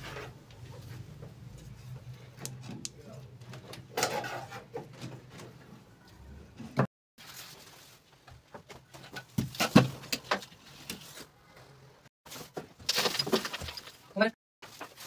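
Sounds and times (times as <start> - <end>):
wooden planks knocking and scraping: 8.1 - 11.2, 12.3 - 15.0.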